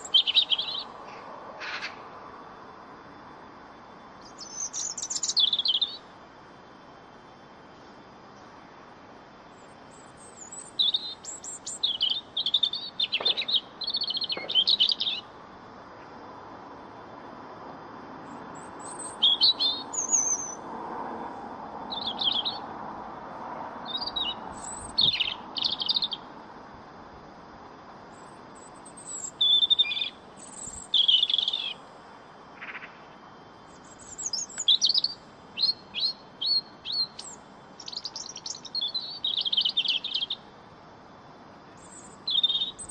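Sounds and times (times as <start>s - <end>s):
bird singing warbling notes: 0.0s - 0.9s, 23.9s - 26.2s, 29.0s - 31.8s
faint background hiss: 0.0s - 42.9s.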